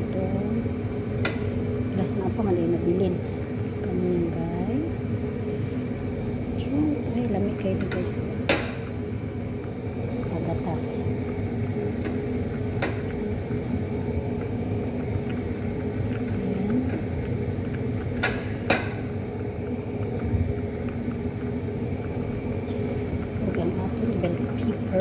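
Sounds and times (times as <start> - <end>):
kitchen machinery humming: 0.0 - 25.0.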